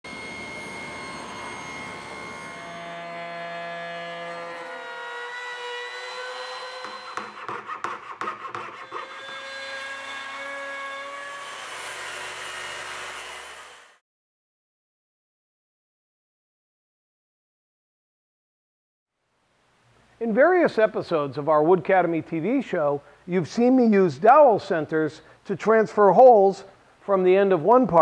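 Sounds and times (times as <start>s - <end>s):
power saw cutting wood: 0.1s - 14.0s.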